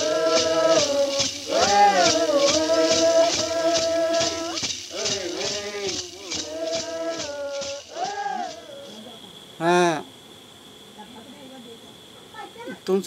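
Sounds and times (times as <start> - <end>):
ceremonial chanting: 0.0 - 9.3
rattle shaken in steady beat: 0.0 - 10.6.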